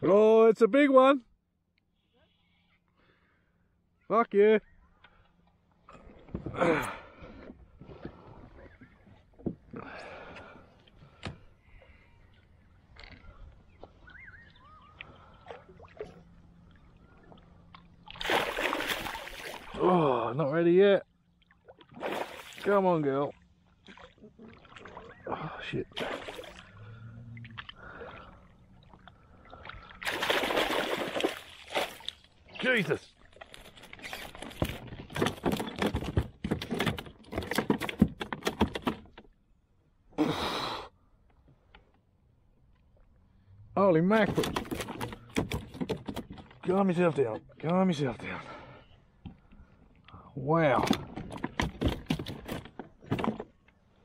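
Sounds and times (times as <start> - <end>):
fish splashing in water: 18.0 - 19.8, 29.7 - 32.2.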